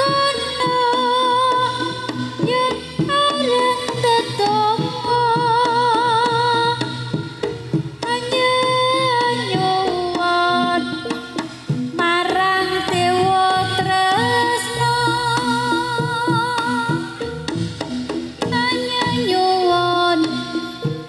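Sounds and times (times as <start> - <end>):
drums beating: 0.0 - 21.0
wavering sliding melody: 7.3 - 21.0.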